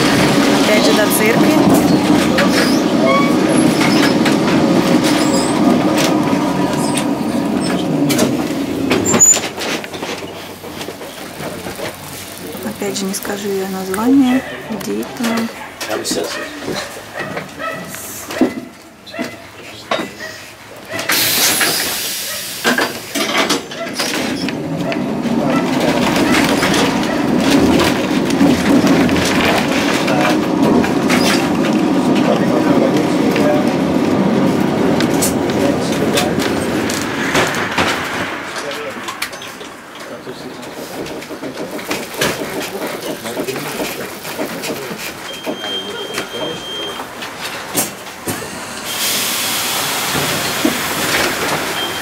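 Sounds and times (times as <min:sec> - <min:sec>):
tram rumbling on rails: 0:00.0 - 0:52.0
sharp clicks and rattles: 0:25.7 - 0:45.8.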